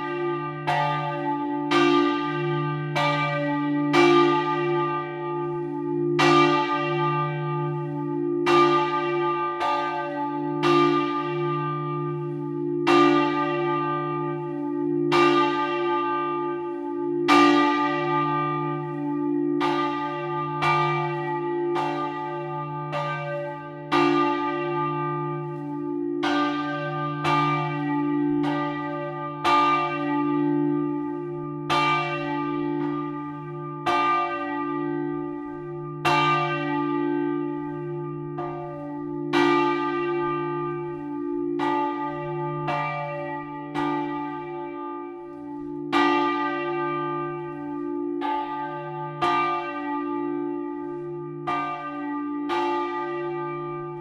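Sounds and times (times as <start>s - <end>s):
large church bell ringing: 0.0s - 54.0s.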